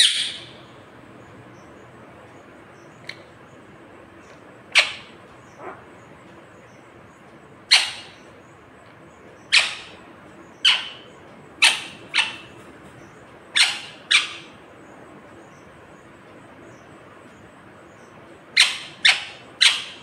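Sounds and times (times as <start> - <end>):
parakeet squawking: 0.0 - 0.5, 4.7 - 5.9, 7.7 - 8.2, 9.5 - 10.0, 10.6 - 12.6, 13.6 - 14.5, 18.6 - 20.0.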